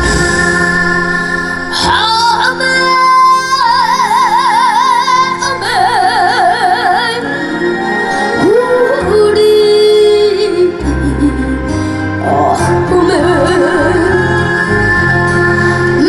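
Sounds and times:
band backing track: 0:00.0 - 0:16.0
boy singing with vibrato: 0:00.4 - 0:07.6.

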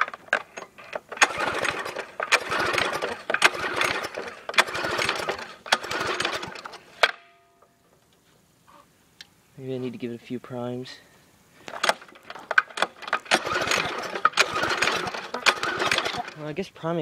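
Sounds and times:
recoil starter pull whirring: 0:00.0 - 0:07.2, 0:11.7 - 0:16.5
starter click: 0:11.7 - 0:16.4.

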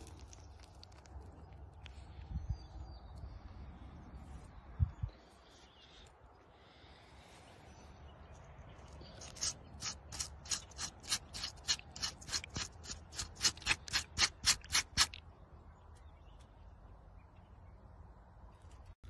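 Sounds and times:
knife scraping a leaf: 0:09.1 - 0:15.2.

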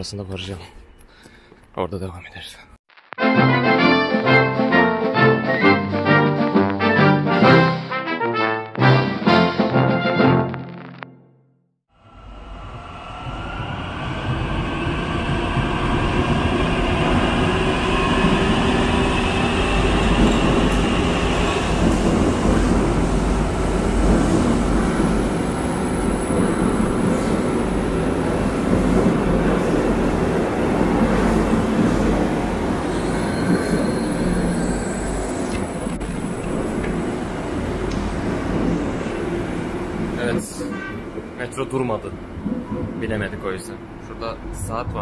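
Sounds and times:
metro train rumble: 0:11.9 - 0:45.0
gliding whines: 0:12.0 - 0:22.0, 0:30.6 - 0:38.3
wheel squeal: 0:32.8 - 0:36.4
thin high whistle: 0:32.9 - 0:36.0.

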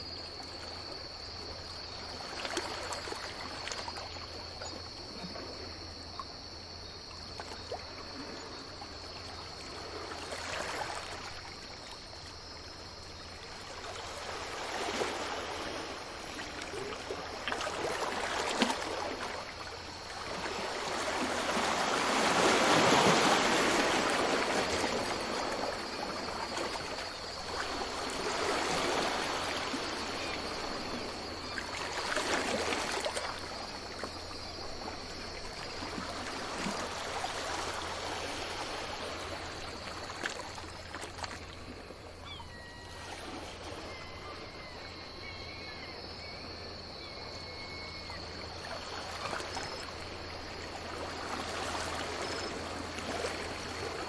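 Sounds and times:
ocean waves breaking: 0:13.5 - 0:42.2, 0:48.8 - 0:54.0.

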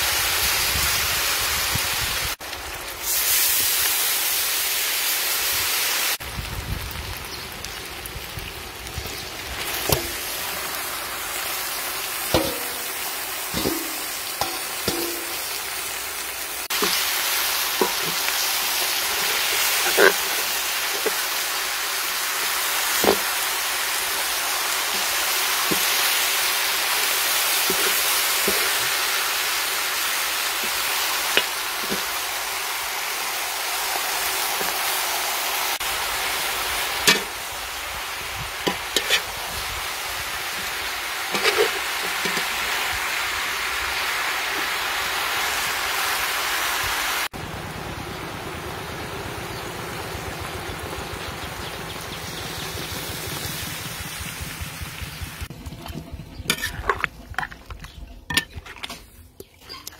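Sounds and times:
chicken sizzling in a wok: 0:00.0 - 0:56.6
metal spatula scraping and clinking: 0:12.3 - 0:15.6, 0:17.8 - 0:21.2, 0:27.6 - 0:29.0, 0:38.7 - 0:39.3, 0:41.3 - 0:42.6, 0:55.6 - 0:59.9.

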